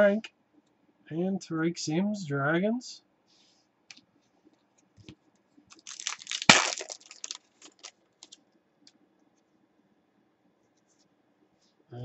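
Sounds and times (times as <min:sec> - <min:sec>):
wrapper crinkling and tearing: 0:05.7 - 0:08.4.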